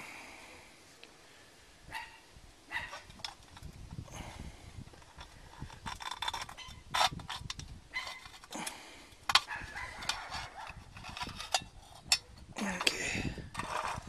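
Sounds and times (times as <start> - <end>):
metal cans scraping: 5.0 - 14.0.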